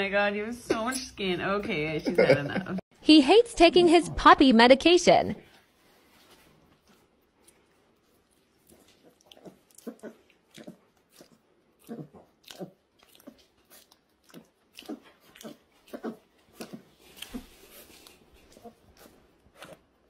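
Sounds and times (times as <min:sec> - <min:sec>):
puppy chewing and smacking: 0:07.4 - 0:20.0.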